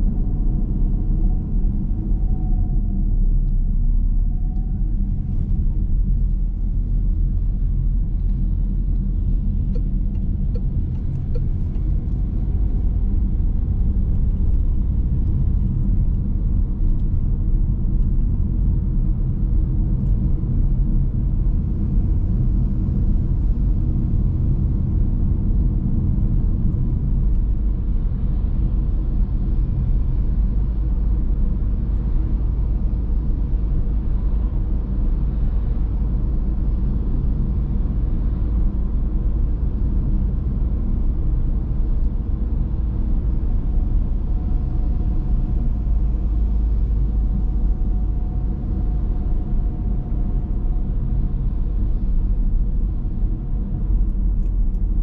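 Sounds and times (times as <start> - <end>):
car engine and tyre rumble: 0.0 - 55.0.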